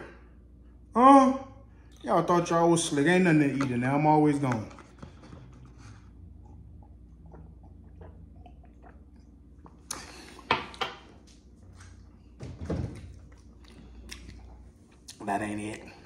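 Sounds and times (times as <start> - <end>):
man sipping and swallowing: 4.6 - 10.8
knocks and handling at refrigerator: 12.4 - 13.2.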